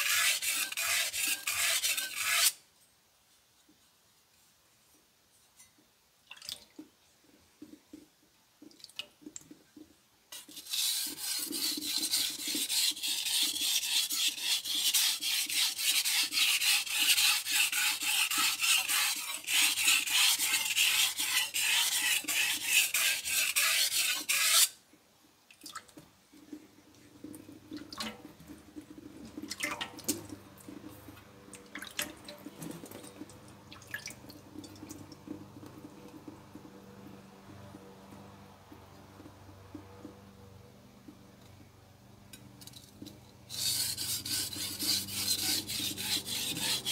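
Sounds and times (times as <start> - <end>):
knife scraping on whetstone: 0.0 - 2.6, 10.3 - 24.8, 43.5 - 46.9.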